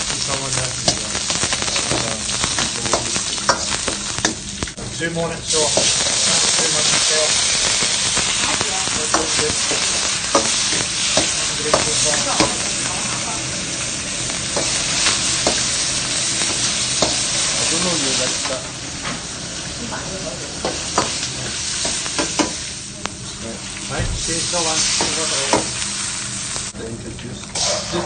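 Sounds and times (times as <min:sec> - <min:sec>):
vegetables sizzling in wok: 0:00.0 - 0:28.0
metal ladle scraping wok: 0:27.6 - 0:28.0.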